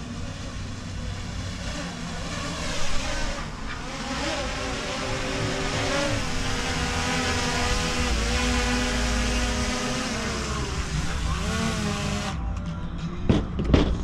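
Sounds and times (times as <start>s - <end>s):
drone propellers whining: 0.0s - 12.4s.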